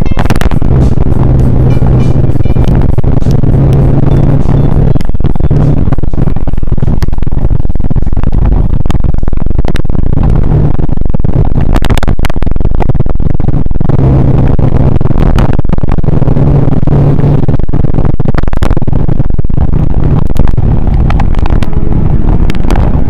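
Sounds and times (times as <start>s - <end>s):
motorcycle engine hum: 0.0s - 23.0s
sharp crackles: 0.0s - 23.0s
wind rush: 0.0s - 23.0s
tyre noise on wet road: 13.9s - 23.0s.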